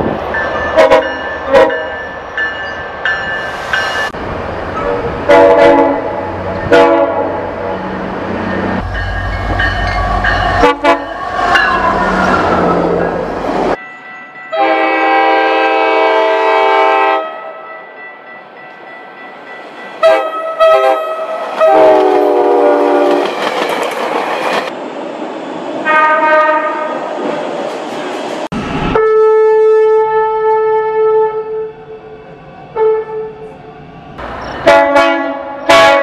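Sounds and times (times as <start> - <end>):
moving train rumble and clatter: 0.0 - 17.1, 17.8 - 36.0
train horn blasts: 0.8 - 1.9, 4.8 - 7.5, 10.1 - 12.4, 14.5 - 17.6, 20.0 - 23.2, 25.8 - 27.0, 28.9 - 31.7, 32.7 - 33.5, 34.6 - 36.0.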